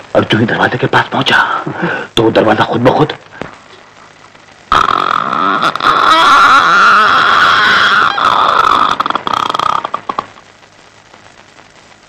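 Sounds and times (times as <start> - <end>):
man imitating a creaking door: 4.7 - 10.3.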